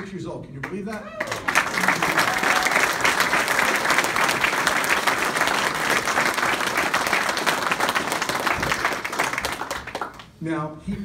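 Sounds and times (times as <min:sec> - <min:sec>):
audience applauding: 0:00.6 - 0:10.4.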